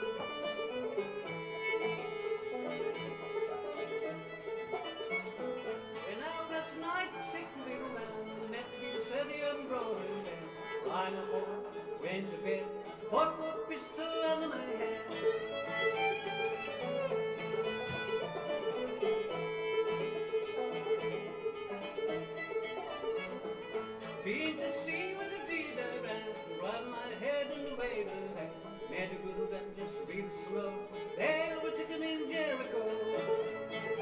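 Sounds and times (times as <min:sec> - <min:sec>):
fiddle melody: 0:00.0 - 0:34.0
string band playing: 0:00.0 - 0:34.0.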